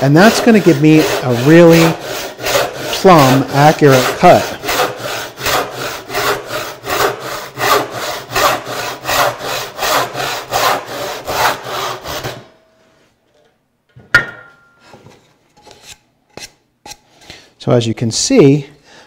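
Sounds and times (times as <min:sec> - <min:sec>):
backsaw cutting wood: 0:00.0 - 0:12.5
sharp knock: 0:14.1 - 0:14.7.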